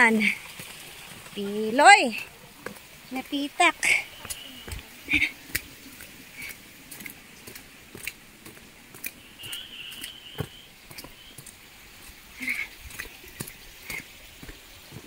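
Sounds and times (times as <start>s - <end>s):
grass and leaves brushing: 0.0s - 15.0s
footsteps on dirt path: 0.2s - 15.0s
thin high call: 9.1s - 11.4s.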